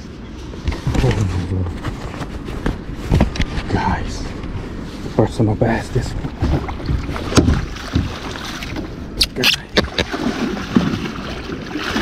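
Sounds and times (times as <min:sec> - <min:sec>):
water splashing: 0:06.4 - 0:12.0.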